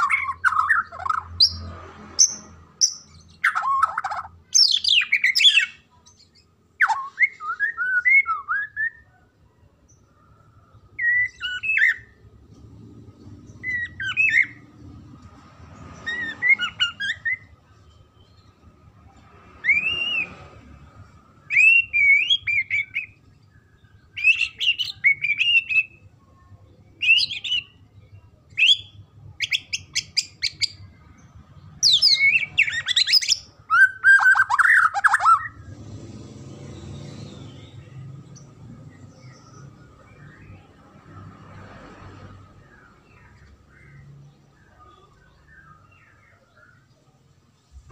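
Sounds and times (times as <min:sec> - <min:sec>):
songbird whistling and singing: 0:00.0 - 0:09.2, 0:10.8 - 0:12.2, 0:13.4 - 0:14.7, 0:15.9 - 0:18.5, 0:19.6 - 0:20.6, 0:21.4 - 0:26.2, 0:26.9 - 0:30.9, 0:31.6 - 0:35.6, 0:42.7 - 0:47.0.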